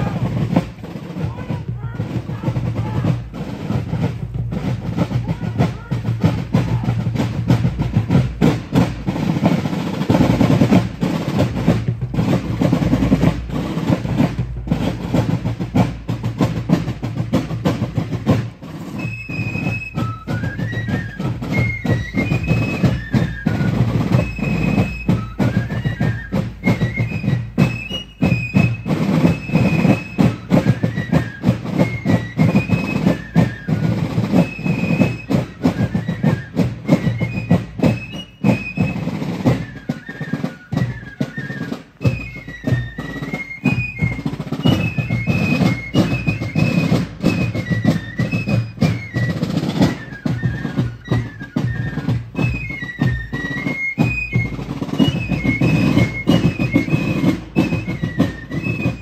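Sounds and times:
snare and bass drums marching rhythm: 0:00.0 - 0:59.0.

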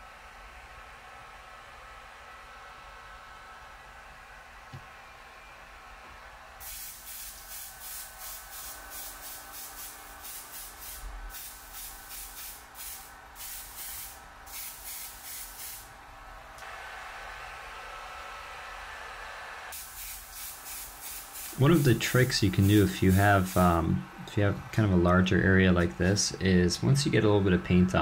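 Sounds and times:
airbrush hiss bursts: 0:06.6 - 0:15.9, 0:19.7 - 0:24.0
steady blowing hiss: 0:06.6 - 0:15.9, 0:19.7 - 0:27.9.

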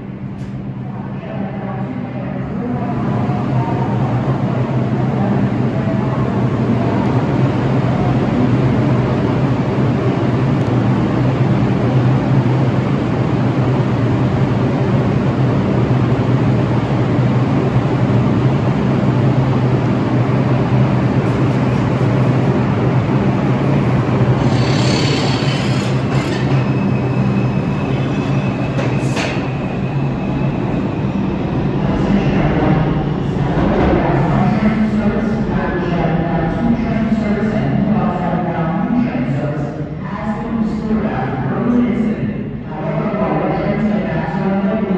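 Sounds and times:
subway train rumbling: 0:00.0 - 0:44.9
high wheel squeal: 0:24.4 - 0:30.5.

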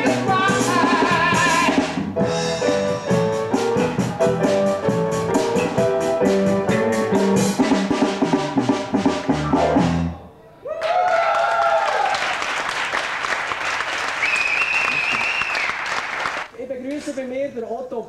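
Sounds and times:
bass run: 0:00.0 - 0:10.2
live band playing: 0:00.0 - 0:10.3
audience applause and cheering: 0:10.6 - 0:16.5.

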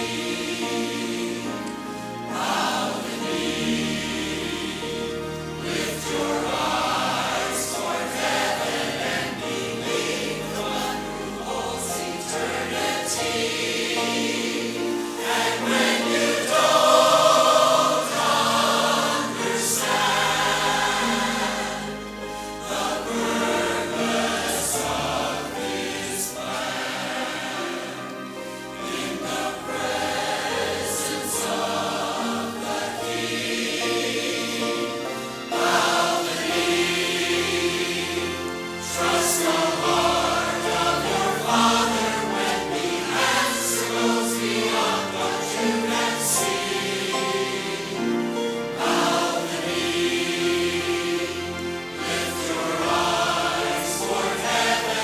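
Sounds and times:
choir singing in harmony: 0:00.0 - 0:55.0.

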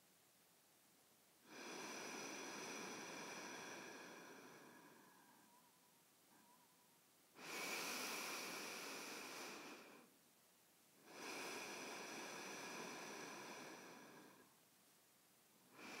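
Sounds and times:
faint slow breathing: 0:01.4 - 0:10.2, 0:11.0 - 0:14.6, 0:15.6 - 0:16.0.

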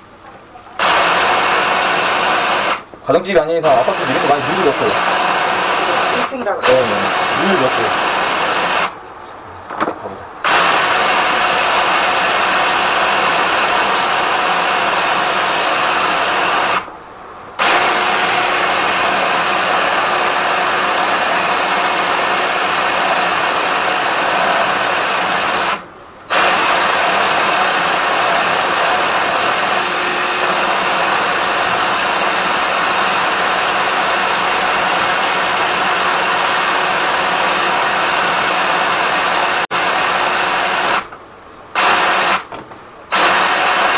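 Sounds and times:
drain-cleaning machine running: 0:03.7 - 0:08.9, 0:10.4 - 0:16.9, 0:17.6 - 0:41.1.

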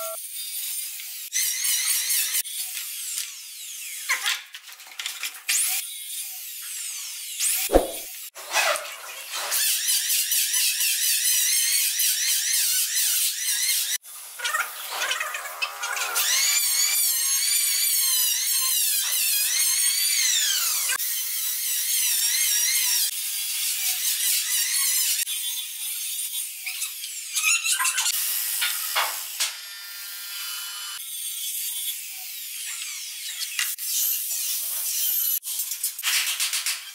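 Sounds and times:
mitre saw cutting wood: 0:28.0 - 0:35.5.

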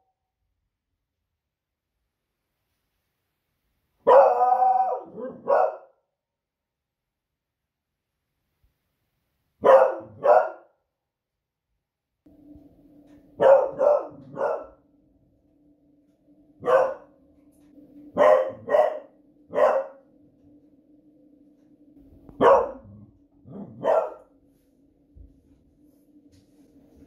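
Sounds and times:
dog barking: 0:04.0 - 0:06.0, 0:09.6 - 0:10.8, 0:13.4 - 0:14.8, 0:16.6 - 0:17.2, 0:18.1 - 0:20.0, 0:22.4 - 0:24.3.

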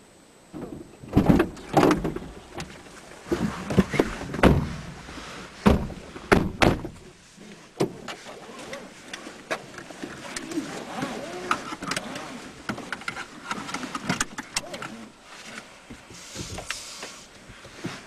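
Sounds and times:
people rustling in car seats: 0:01.1 - 0:18.0
car doors slamming: 0:05.6 - 0:07.0.

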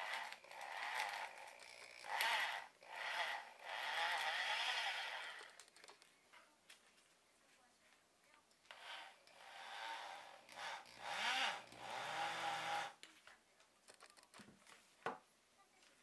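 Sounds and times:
rotary tool grinding wood: 0:00.0 - 0:05.8, 0:08.7 - 0:13.0.

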